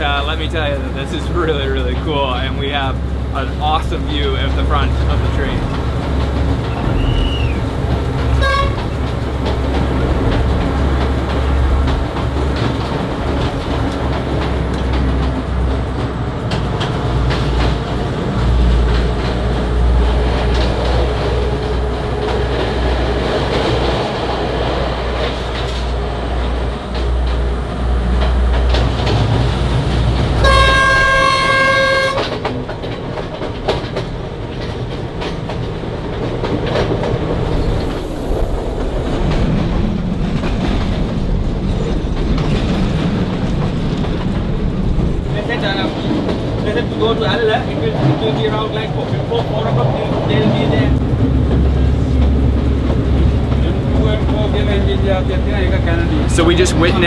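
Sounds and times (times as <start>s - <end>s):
diesel train engine drone: 0.0s - 57.0s
wheels clattering over rails: 0.0s - 57.0s
train horn blast: 8.4s - 8.9s, 30.4s - 32.4s.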